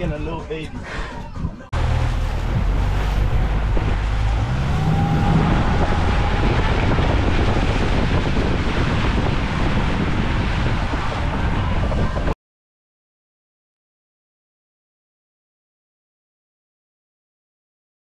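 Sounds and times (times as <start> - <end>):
wind buffeting microphone: 1.3 - 12.4
outboard engine drone: 1.8 - 12.3
water rushing past hull: 1.8 - 12.4.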